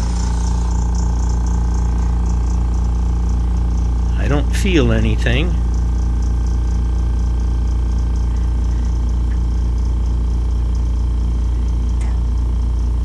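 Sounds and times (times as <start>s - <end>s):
air compressor humming: 0.0s - 13.0s.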